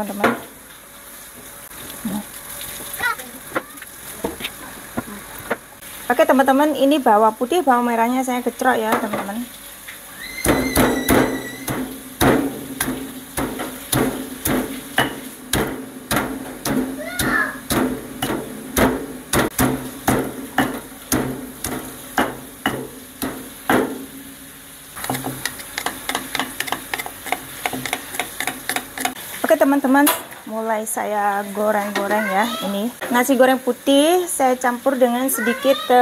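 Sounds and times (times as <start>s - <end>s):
stone pestle pounding in mortar: 10.4s - 24.0s, 25.0s - 29.2s.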